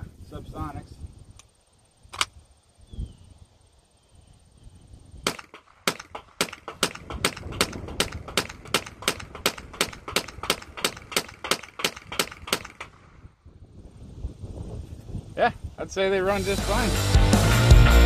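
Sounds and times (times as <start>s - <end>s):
rifle shots in rapid succession: 5.3s - 13.0s.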